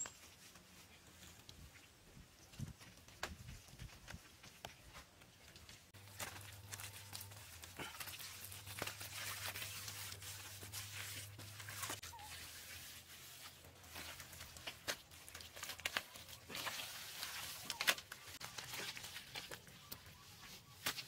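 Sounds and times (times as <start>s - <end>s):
wet rubbing and scraping: 5.9s - 21.0s.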